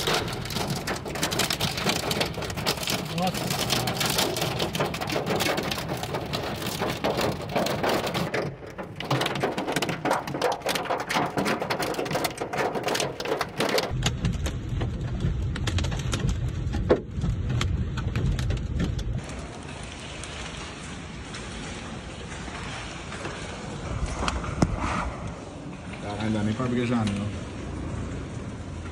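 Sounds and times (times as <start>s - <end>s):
hail and rain on a car: 0.0s - 24.7s
deep steady rumble: 13.8s - 19.9s.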